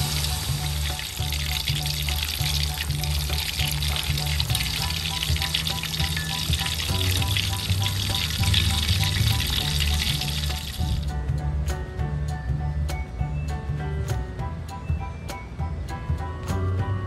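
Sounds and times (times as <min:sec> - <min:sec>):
chicken deep-frying in oil: 0:00.0 - 0:11.1.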